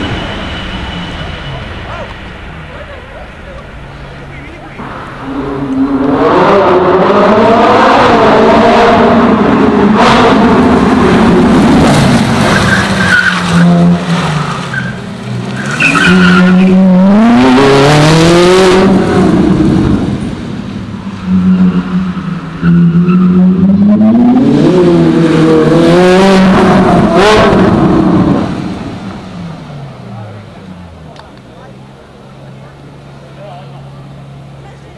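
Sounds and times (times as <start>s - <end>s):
sports car engine revving hard: 5.2s - 14.6s, 15.6s - 20.6s, 21.2s - 29.1s.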